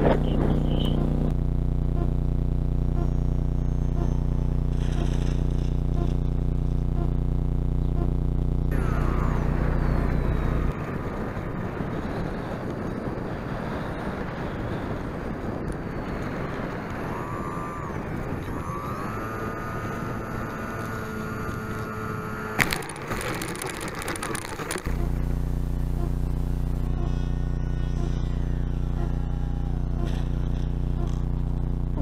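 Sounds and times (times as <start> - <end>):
electric motor whine: 0.0 - 32.0
plane rattling over grass: 4.0 - 6.7, 8.8 - 31.3
rushing airflow: 8.8 - 30.5.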